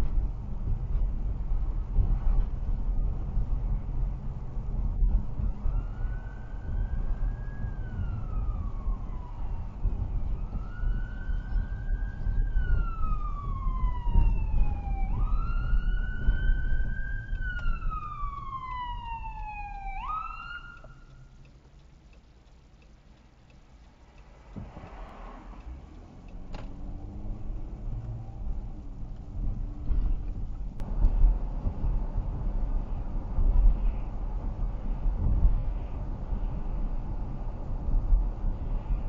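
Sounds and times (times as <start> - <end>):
car road and engine rumble: 0.0 - 39.0
ambulance siren wailing: 5.4 - 21.2.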